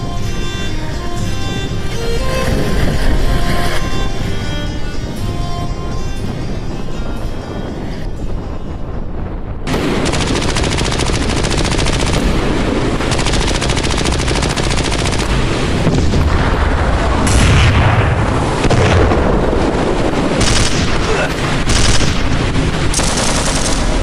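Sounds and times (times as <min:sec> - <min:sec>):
deep blasts with low rumble: 0:00.0 - 0:24.0
rapid machine-gun fire: 0:09.7 - 0:16.2, 0:20.4 - 0:24.0.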